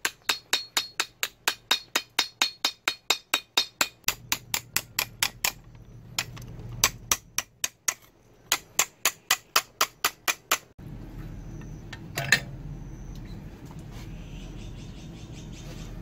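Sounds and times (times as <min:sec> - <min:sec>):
hammer striking steel: 0:00.0 - 0:10.7
steady low hum: 0:10.8 - 0:16.0.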